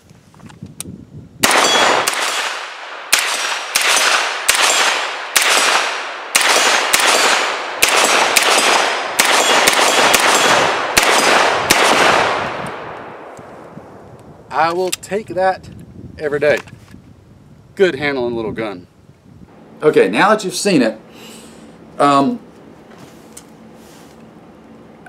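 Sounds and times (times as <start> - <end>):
pistol gunshots: 1.4 - 13.4.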